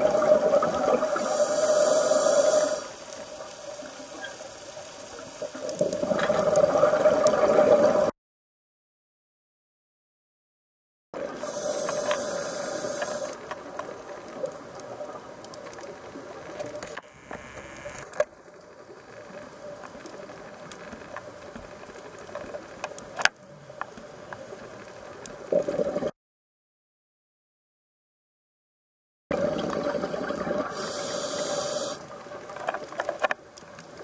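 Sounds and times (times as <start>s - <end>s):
underwater hissing rush: 1.0s - 3.2s, 11.3s - 13.4s, 30.0s - 32.2s
clicks and pops: 16.6s - 18.3s.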